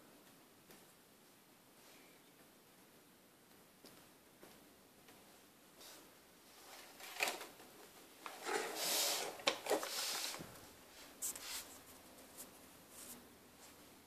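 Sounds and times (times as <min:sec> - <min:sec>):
fabric rustling and rubbing: 0:05.8 - 0:13.9.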